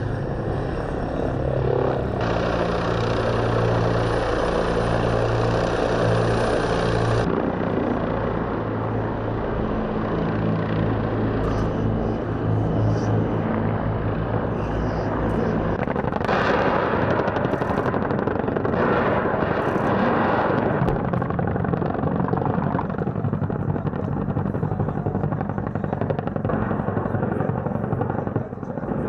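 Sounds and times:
helicopter rotor and turbines: 0:00.0 - 0:29.0
rapid cannon fire: 0:15.8 - 0:29.0.

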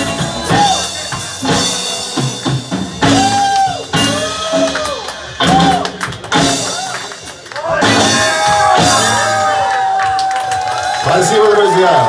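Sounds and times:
drum kit hitting hard: 0:00.0 - 0:07.1, 0:07.7 - 0:09.7
live rock band playing: 0:00.0 - 0:12.0.

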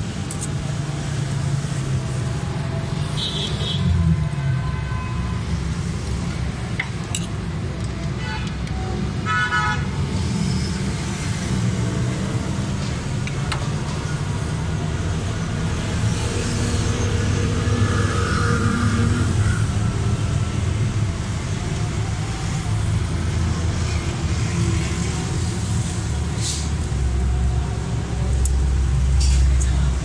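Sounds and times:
road traffic rumble: 0:00.0 - 0:30.0
vehicle horn: 0:09.2 - 0:09.9.

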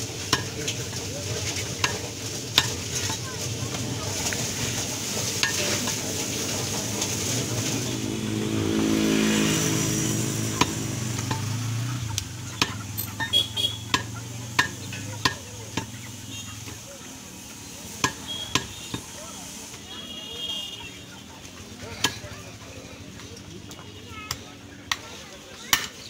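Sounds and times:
street noise: 0:00.0 - 0:26.0
vehicle passing: 0:03.6 - 0:17.5.

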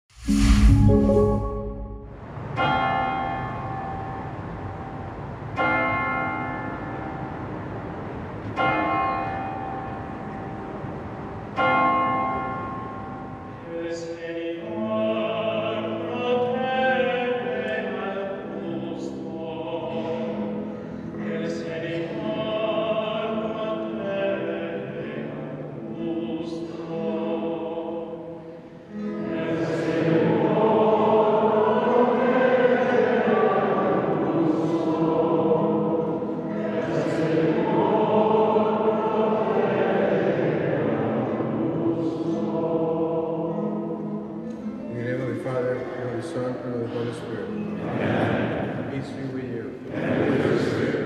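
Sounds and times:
congregation singing a hymn: 0:00.3 - 0:51.0
choir chanting in held notes: 0:13.7 - 0:44.4, 0:47.6 - 0:49.1, 0:49.8 - 0:51.0.

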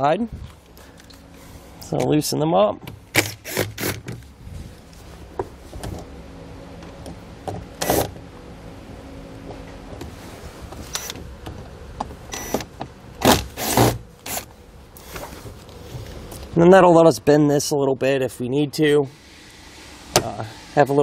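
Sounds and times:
cordless driver motor whirring: 0:03.1 - 0:04.0, 0:12.3 - 0:14.5.

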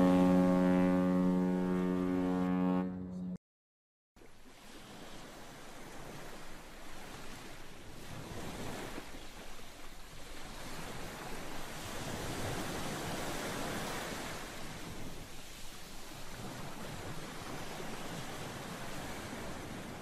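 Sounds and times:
sea waves surging: 0:04.2 - 0:20.0.

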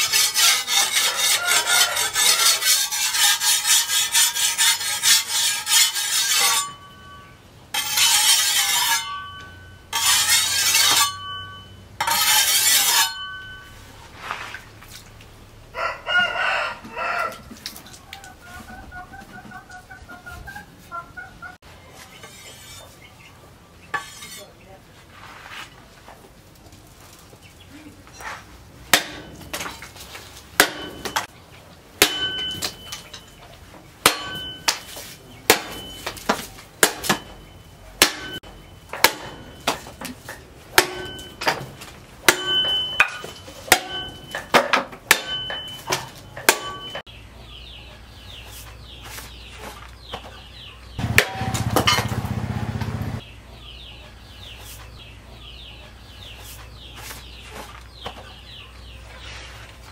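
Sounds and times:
metallic ring from blade: 0:06.3 - 0:13.8
knife chopping wood: 0:28.9 - 0:29.8, 0:30.6 - 0:31.3, 0:32.0 - 0:32.8, 0:34.0 - 0:37.3, 0:38.0 - 0:38.4, 0:39.0 - 0:42.7, 0:43.7 - 0:47.0.

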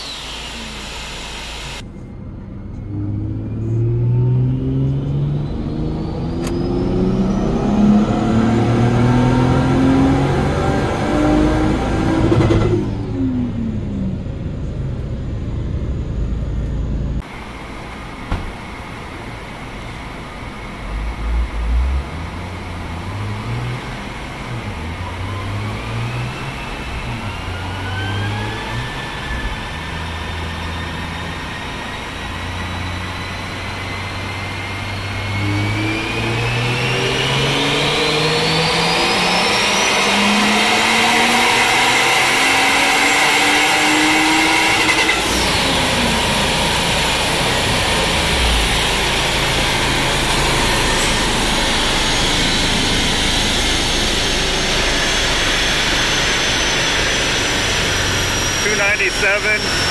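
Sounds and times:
car engine revving on dyno: 0:00.0 - 0:01.8, 0:02.8 - 0:14.3, 0:17.2 - 0:59.9
high turbo whine: 0:00.0 - 0:59.9
dyno rollers rushing: 0:43.0 - 0:59.9.

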